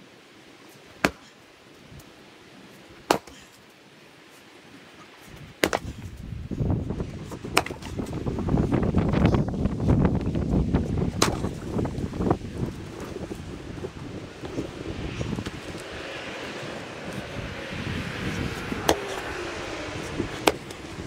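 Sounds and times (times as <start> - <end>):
axe chopping firewood: 1.0 - 1.4, 3.0 - 3.5, 5.6 - 6.1, 7.4 - 8.0, 11.2 - 11.6, 18.8 - 19.2, 20.4 - 20.8
wind buffeting microphone: 5.2 - 21.0.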